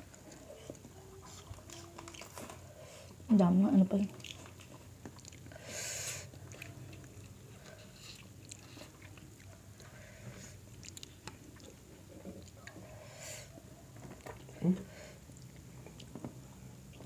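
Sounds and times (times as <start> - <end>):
chewing and mouth smacks: 0.0 - 2.6, 4.1 - 5.5, 6.3 - 10.0, 10.6 - 12.9, 13.6 - 14.6, 15.2 - 17.0.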